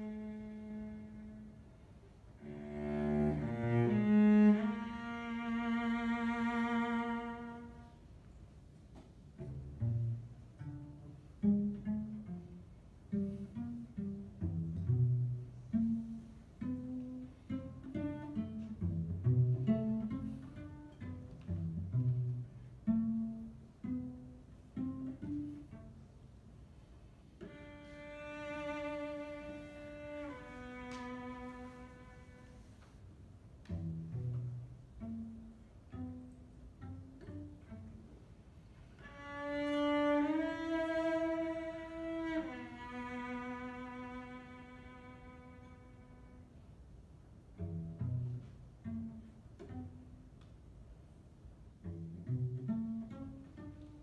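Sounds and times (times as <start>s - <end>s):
cello plucked notes: 0.0s - 8.1s, 8.9s - 54.0s.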